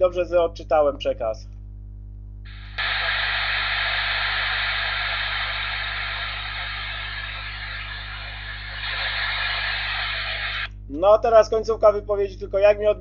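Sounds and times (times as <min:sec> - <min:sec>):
low mains hum: 0:00.0 - 0:13.0
buried radio voice: 0:02.5 - 0:10.7
radio static hiss: 0:02.5 - 0:10.8.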